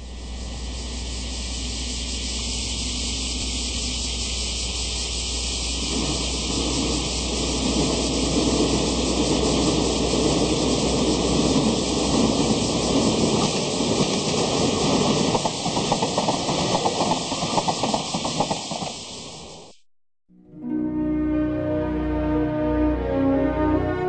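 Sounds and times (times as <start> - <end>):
low hum: 0.0 - 14.0
model train rumble: 0.0 - 19.8
steady hiss: 0.0 - 19.8.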